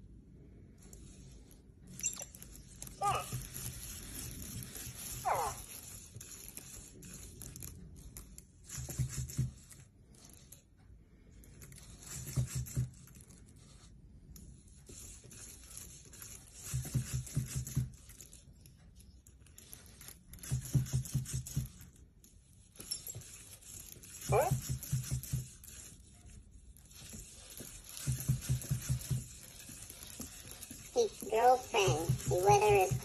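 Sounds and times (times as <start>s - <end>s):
small robot feet crinkling paper: 27.0s - 33.0s.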